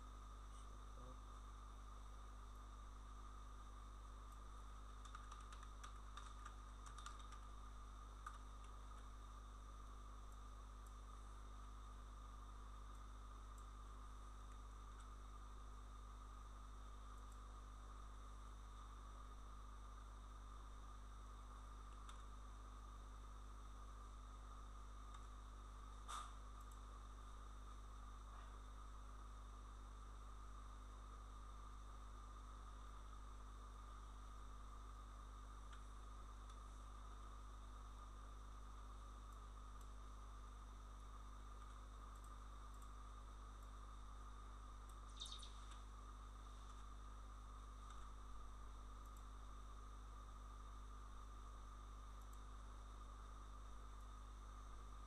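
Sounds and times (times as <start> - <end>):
low hum and hiss: 0.0 - 55.0
faint ticks: 4.2 - 9.2, 12.8 - 13.8, 14.4 - 15.2, 41.5 - 43.8, 44.8 - 45.9, 49.0 - 49.3, 52.1 - 52.5.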